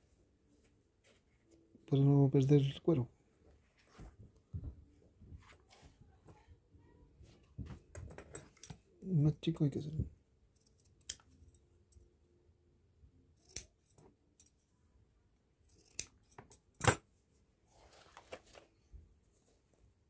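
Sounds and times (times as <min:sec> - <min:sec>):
scissors snipping leather: 0:13.4 - 0:14.5, 0:15.7 - 0:17.0.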